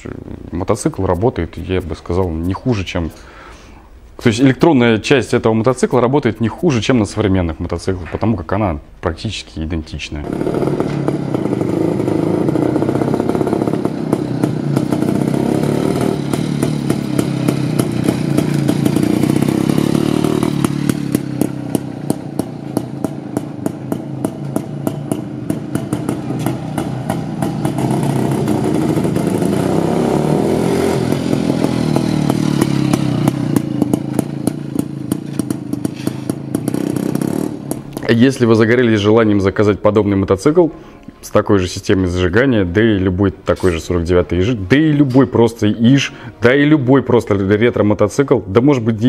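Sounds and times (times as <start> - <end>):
exhaust pops: 10.2 - 30.1, 30.8 - 38.8
two-stroke motorcycle engine revving: 10.2 - 38.1.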